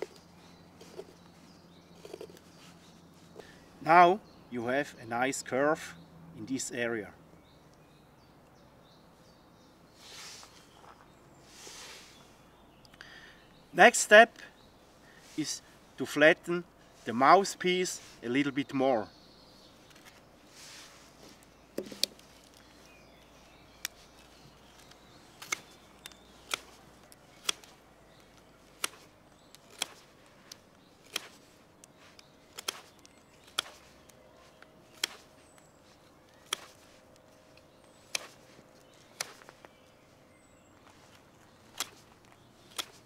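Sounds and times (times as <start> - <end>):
knife shaving wood: 23.8 - 37.1, 37.9 - 39.7.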